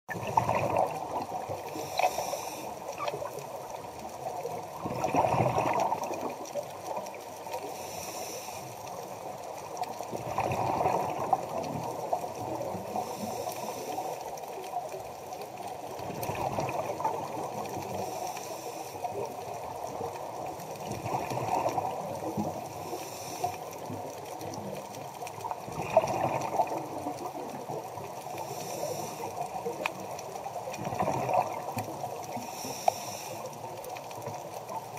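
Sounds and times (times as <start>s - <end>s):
exhaled bubbles underwater: 0.1s - 7.7s, 9.0s - 18.4s, 19.0s - 32.8s
regulator inhale hiss: 1.6s - 3.0s, 7.6s - 9.2s, 12.9s - 14.4s, 17.8s - 19.3s, 22.7s - 23.9s, 28.3s - 29.8s, 32.3s - 33.7s.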